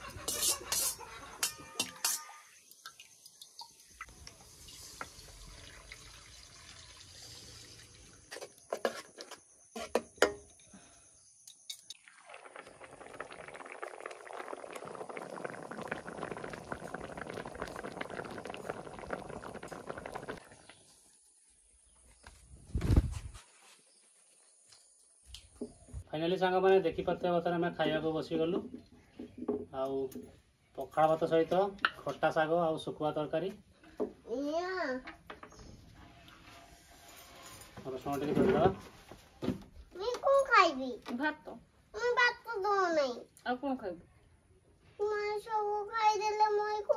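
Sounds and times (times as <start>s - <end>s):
metal spatula scraping a wok: 0.0s - 2.5s, 36.4s - 37.8s
curry bubbling: 11.9s - 20.8s.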